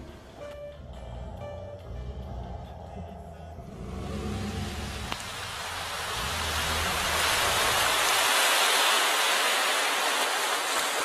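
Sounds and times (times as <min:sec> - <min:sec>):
low hum: 0:00.0 - 0:08.1
rushing water: 0:03.7 - 0:11.0.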